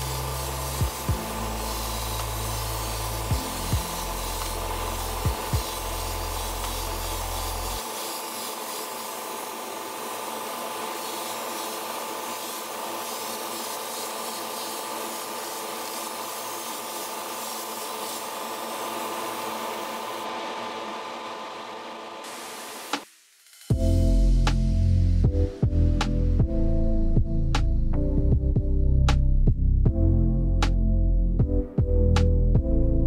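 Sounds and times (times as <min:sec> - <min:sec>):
spray booth hiss: 0:00.0 - 0:20.2, 0:22.2 - 0:23.7
motor hum: 0:00.0 - 0:23.0.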